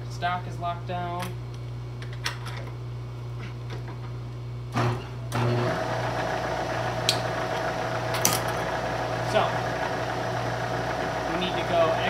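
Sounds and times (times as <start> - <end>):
milling machine motor humming: 4.8 - 12.0.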